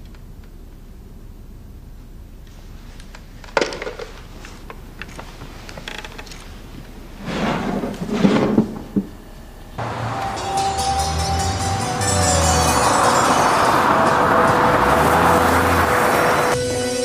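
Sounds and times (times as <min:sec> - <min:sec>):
wood scraping and rattling: 0:03.5 - 0:09.2.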